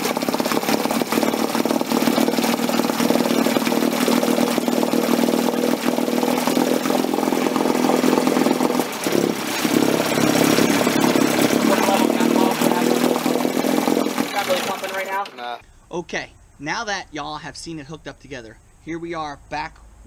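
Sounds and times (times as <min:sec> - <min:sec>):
two-stroke outboard motor running: 0:00.0 - 0:15.6.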